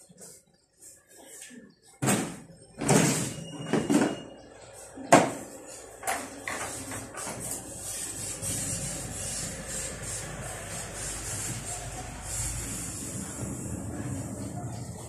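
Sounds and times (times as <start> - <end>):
rubbing or scraping: 5.7 - 15.0.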